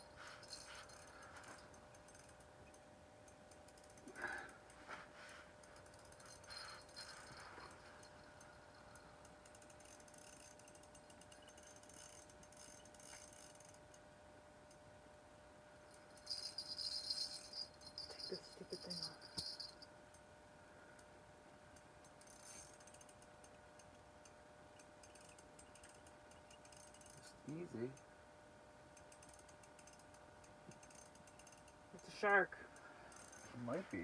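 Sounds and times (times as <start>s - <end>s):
faint steady hum: 0.0s - 34.0s
fishing reel clicking and rattling: 0.4s - 2.5s, 3.5s - 4.6s, 5.7s - 14.0s, 22.0s - 28.0s, 28.9s - 34.0s.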